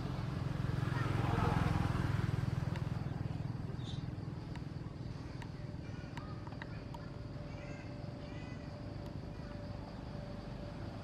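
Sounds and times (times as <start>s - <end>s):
vehicle engine rumble: 0.0s - 11.0s
faint high chirps: 2.8s - 11.0s.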